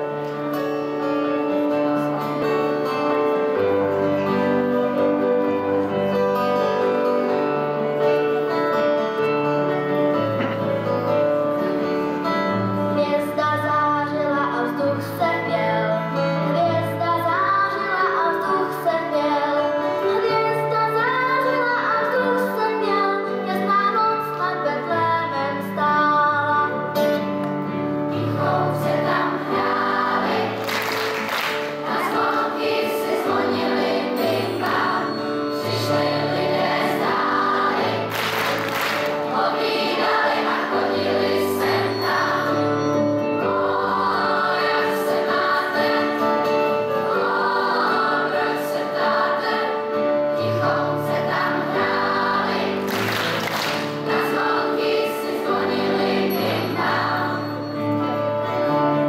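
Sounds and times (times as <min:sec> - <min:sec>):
keyboard and guitars: 0:00.0 - 0:59.0
children's choir singing: 0:28.1 - 0:58.8.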